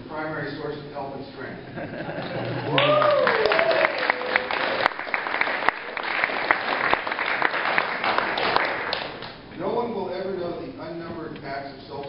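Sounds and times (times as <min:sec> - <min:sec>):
audience applauding: 0:02.2 - 0:09.4.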